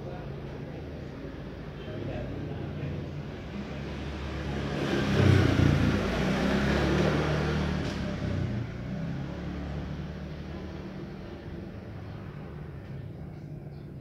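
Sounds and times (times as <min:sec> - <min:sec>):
vehicle engine passing by: 0:00.2 - 0:14.0.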